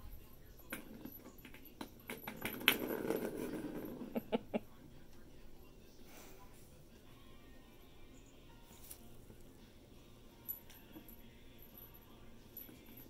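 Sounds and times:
rustling: 0:08.6 - 0:09.5.

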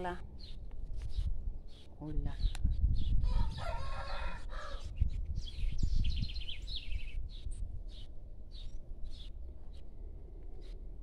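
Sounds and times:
small birds chirping: 0:00.0 - 0:11.0
rooster crowing: 0:03.2 - 0:04.9.

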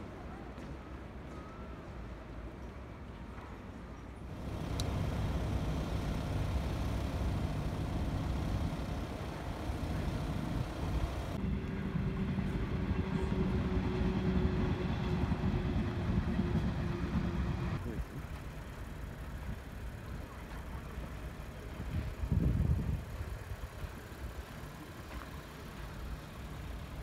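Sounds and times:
vehicle engine idling: 0:04.3 - 0:11.4
droning hum: 0:04.3 - 0:20.2.

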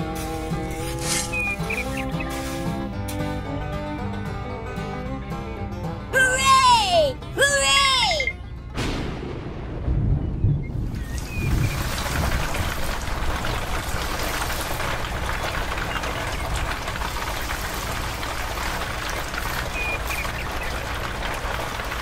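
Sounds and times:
water falling onto sand: 0:00.0 - 0:02.7, 0:10.9 - 0:22.0.

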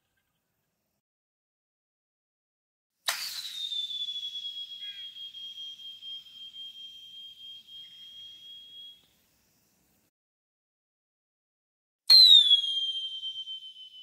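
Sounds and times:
whistling arrow in flight: 0:03.0 - 0:09.1, 0:12.1 - 0:14.0.

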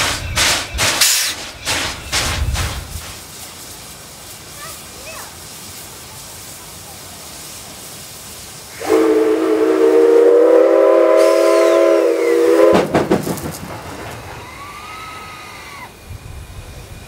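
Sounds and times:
soft steam hiss: 0:00.0 - 0:17.0
steam whistle blast: 0:08.7 - 0:12.9.

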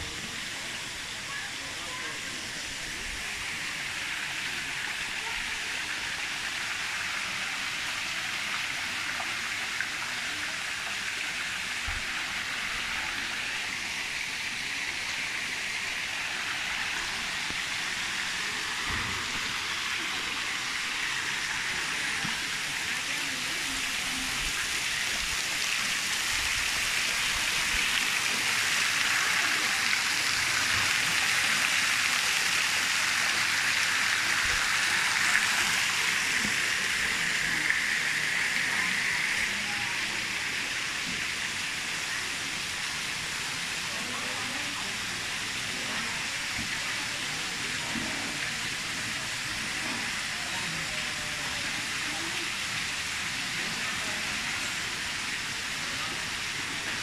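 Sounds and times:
water pouring into a pond: 0:00.0 - 0:57.0.

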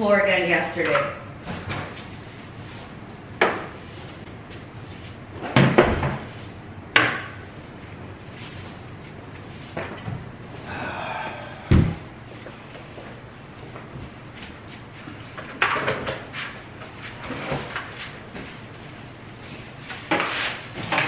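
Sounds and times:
heavy thud: 0:11.6 - 0:12.1.

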